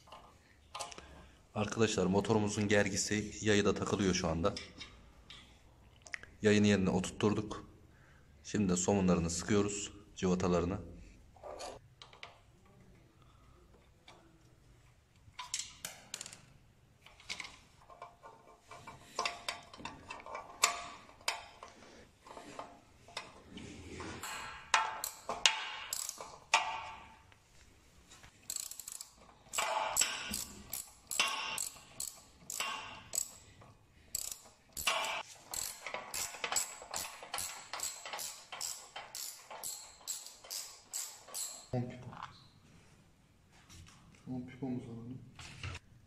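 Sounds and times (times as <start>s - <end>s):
ratchet wrench clicking: 24.2s - 26.7s, 28.5s - 33.5s, 34.1s - 41.7s
tool clinking on metal: 28.5s - 33.4s, 34.1s - 41.7s.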